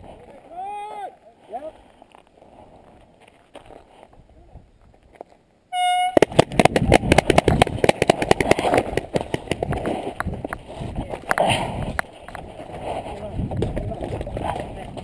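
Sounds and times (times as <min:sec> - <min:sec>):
running footsteps on gravel: 0:01.7 - 0:05.4, 0:06.2 - 0:15.0
short horn tone: 0:05.7 - 0:06.2
wind on microphone: 0:06.0 - 0:15.0.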